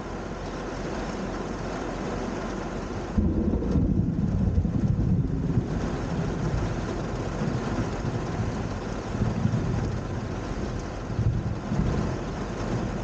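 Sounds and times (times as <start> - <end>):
steady rain: 0.0 - 13.0
thunder rumbling: 3.1 - 13.0.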